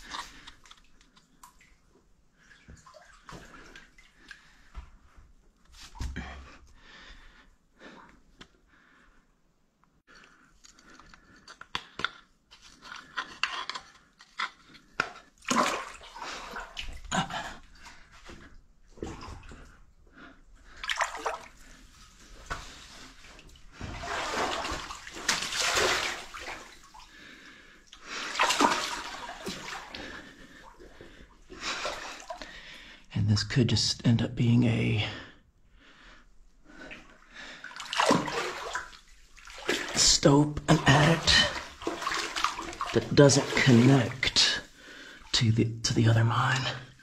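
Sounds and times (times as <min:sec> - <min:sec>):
boots wading through water: 0:20.8 - 0:27.1, 0:28.2 - 0:32.4, 0:37.6 - 0:45.3.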